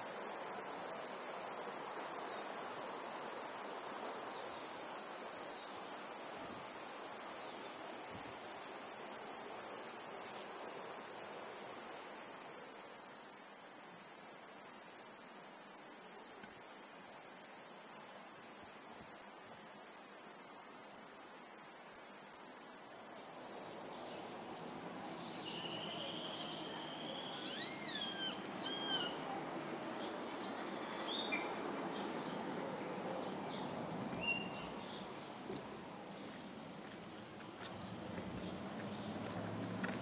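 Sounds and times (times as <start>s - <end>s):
low hiss: 0.0s - 39.8s
bird whistled calls: 25.6s - 29.2s, 34.2s - 34.7s.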